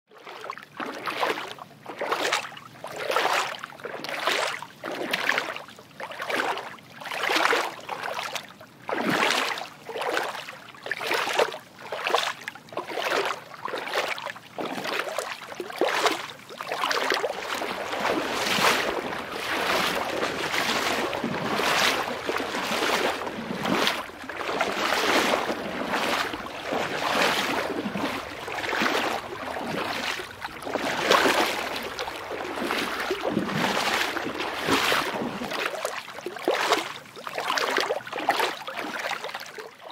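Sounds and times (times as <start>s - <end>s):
footsteps splashing through water: 0.1s - 39.9s
flowing water rushing: 15.9s - 39.1s.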